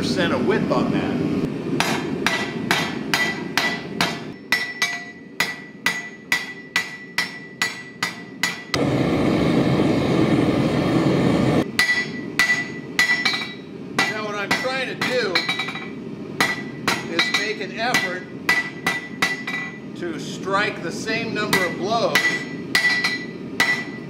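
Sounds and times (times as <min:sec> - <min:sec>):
hammer striking steel on anvil: 0:01.8 - 0:08.8, 0:11.7 - 0:19.9, 0:21.4 - 0:24.0
gas forge rushing: 0:08.4 - 0:24.0.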